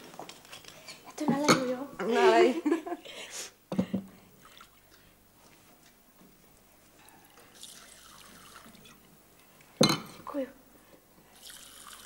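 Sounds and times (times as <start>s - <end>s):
liquid being poured: 4.4s - 5.1s, 7.2s - 9.1s, 11.4s - 12.0s.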